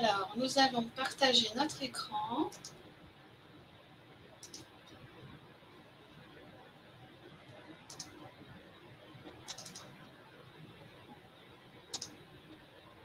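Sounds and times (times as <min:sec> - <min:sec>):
faint room noise: 0:00.0 - 0:13.0
sharp computer clicks: 0:02.4 - 0:02.8, 0:04.4 - 0:05.0, 0:07.5 - 0:08.3, 0:09.3 - 0:10.1, 0:11.9 - 0:12.3.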